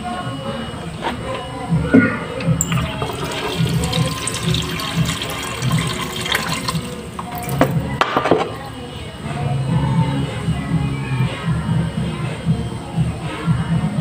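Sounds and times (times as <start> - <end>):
music playing: 0.0 - 14.0
water running: 2.5 - 8.9.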